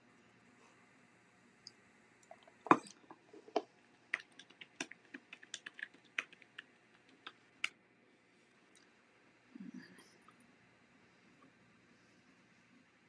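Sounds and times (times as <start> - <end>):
computer keyboard typing: 2.7 - 7.4.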